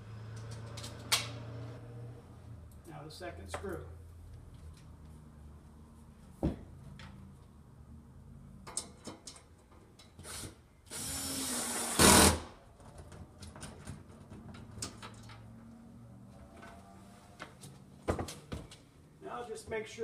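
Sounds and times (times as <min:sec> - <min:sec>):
cordless drill driving screw: 0:10.2 - 0:12.5.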